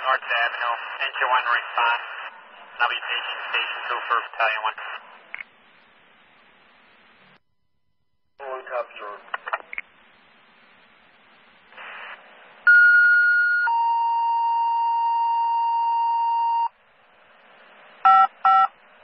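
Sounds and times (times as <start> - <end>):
faint radio hiss: 0.0 - 7.4, 8.4 - 12.7, 16.7 - 19.0
two-tone radio paging tones: 18.1 - 18.7.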